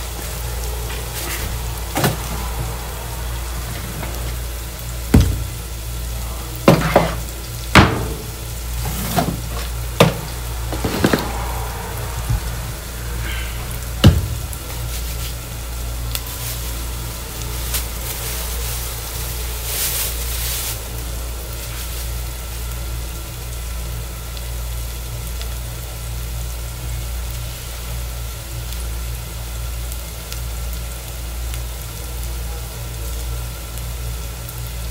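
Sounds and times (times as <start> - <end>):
low hum: 0.0 - 6.6, 7.2 - 21.7
onions sizzling in oil: 0.0 - 34.9.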